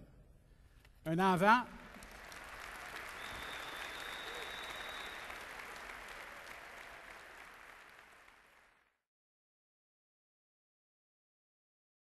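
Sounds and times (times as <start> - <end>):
audience applauding: 1.8 - 9.0.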